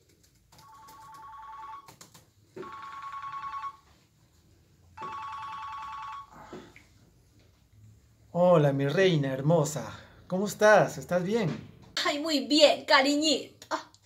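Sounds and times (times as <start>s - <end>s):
telephone ringing two-tone trill: 0.6s - 1.9s, 2.6s - 4.0s, 5.0s - 6.4s.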